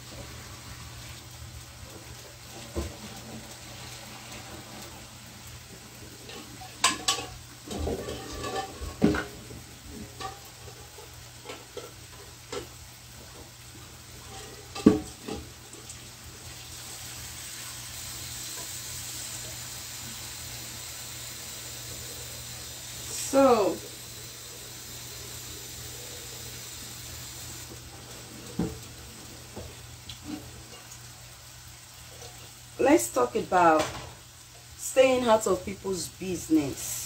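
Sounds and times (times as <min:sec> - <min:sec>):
steady water hiss: 0:00.0 - 0:37.0
pot knocking against sink: 0:14.8 - 0:15.4.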